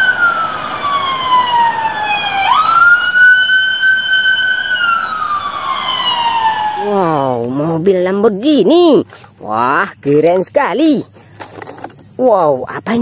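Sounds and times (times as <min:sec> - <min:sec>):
police siren wailing: 0:00.0 - 0:07.6.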